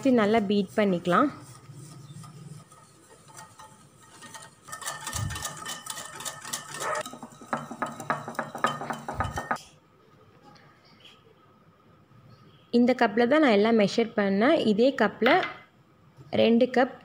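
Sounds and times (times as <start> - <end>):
whisk beating batter in glass bowl: 0.0 - 9.6.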